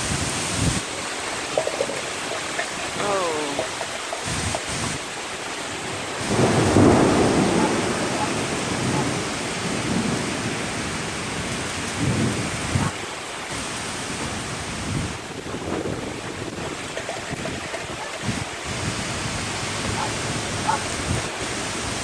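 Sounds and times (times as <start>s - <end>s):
heavy rain pouring: 0.0s - 22.0s
thunder rumbling: 5.8s - 13.0s, 14.2s - 21.4s.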